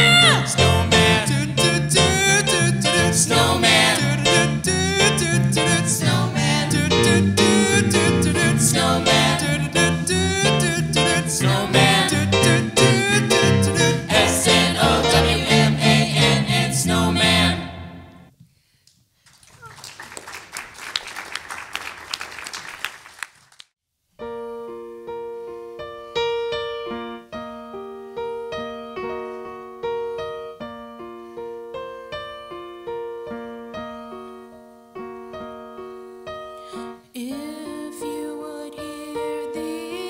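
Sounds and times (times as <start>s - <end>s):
person singing: 0.0s - 17.6s, 36.8s - 40.0s
audience applauding: 19.2s - 23.7s.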